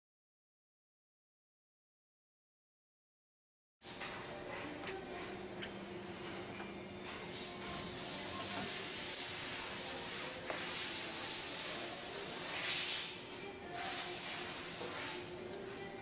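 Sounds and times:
loud steady hiss: 7.3s - 15.3s.

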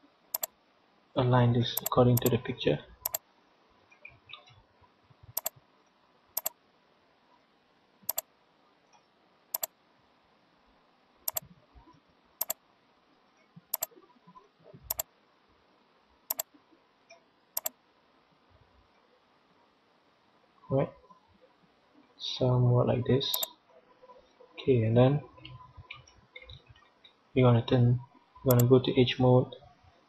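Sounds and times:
faint steady hiss: 0.0s - 30.0s
computer mouse clicking: 0.3s - 0.5s, 1.8s - 2.3s, 5.4s - 5.6s, 6.4s - 6.6s, 11.3s - 11.5s, 12.4s - 12.6s, 13.7s - 13.9s, 14.9s - 15.1s, 17.1s - 17.8s, 23.3s - 23.5s, 28.5s - 28.7s.

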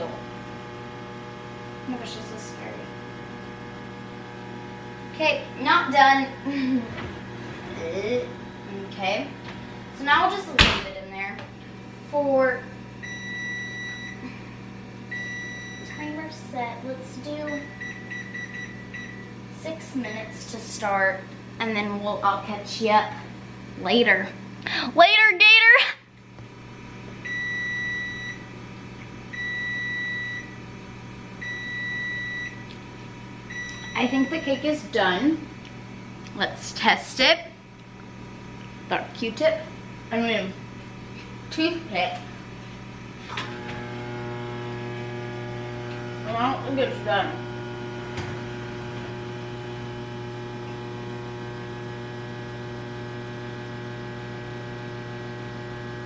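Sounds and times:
electrical hum: 0.0s - 56.0s
oven timer beeping: 13.0s - 14.2s, 15.1s - 16.2s, 17.3s - 19.3s, 20.0s - 20.4s, 27.2s - 28.5s, 29.3s - 30.6s, 31.4s - 32.7s, 33.5s - 34.8s.

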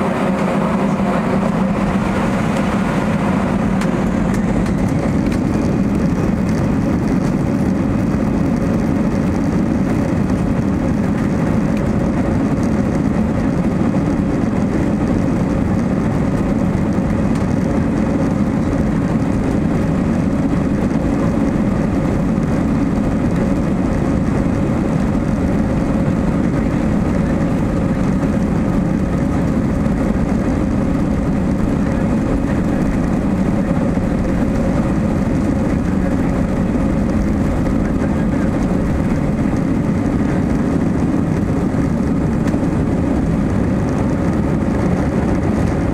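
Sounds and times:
jet engines in airliner cabin: 0.0s - 45.9s.

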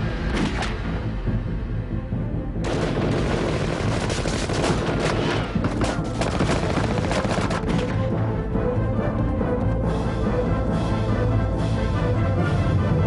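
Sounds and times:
dramatic film score: 0.0s - 13.0s
rapid gunfire: 2.6s - 7.8s.

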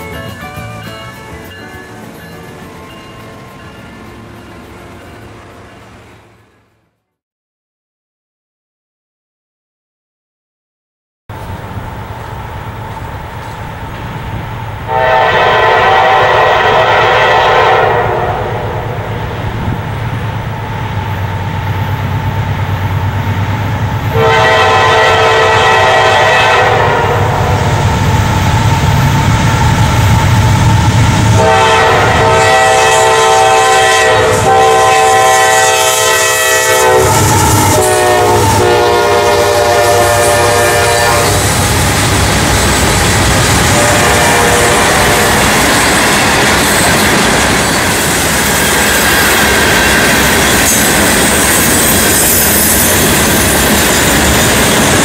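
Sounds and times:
train cars clickety-clack: 0.0s - 6.7s, 11.3s - 55.0s
locomotive low rumble: 11.3s - 17.0s, 18.0s - 24.8s, 25.5s - 33.3s
train horn blasts: 14.9s - 19.4s, 24.0s - 28.0s, 31.3s - 41.6s, 43.6s - 45.4s.

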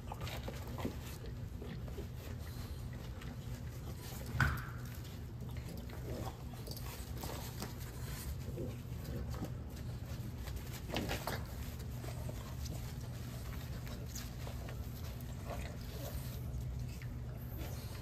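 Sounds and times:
low steady hum: 0.0s - 18.0s.

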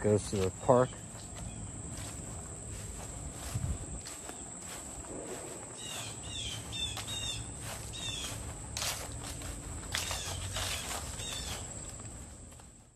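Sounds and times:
footsteps on grass: 0.0s - 12.9s
insect drone: 0.0s - 12.9s
bird calls: 0.6s - 2.1s, 5.7s - 8.5s, 9.9s - 11.8s.

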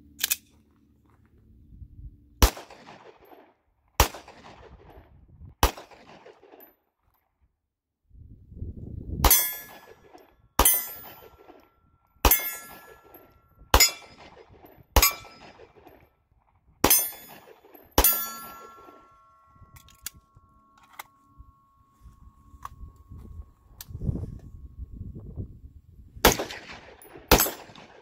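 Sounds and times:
pistol shots: 2.4s - 4.8s, 5.6s - 6.6s, 13.7s - 15.9s, 16.8s - 19.1s, 26.2s - 28.0s.

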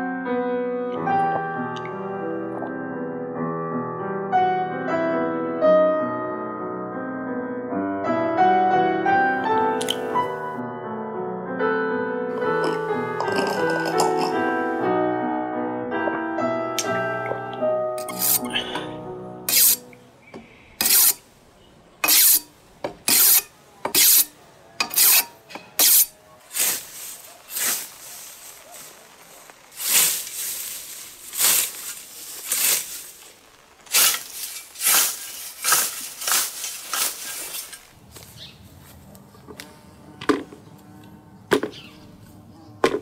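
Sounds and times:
rasping scraping strokes on wood: 18.0s - 18.8s, 19.5s - 19.9s, 20.8s - 21.2s, 22.0s - 22.5s, 23.1s - 28.0s.

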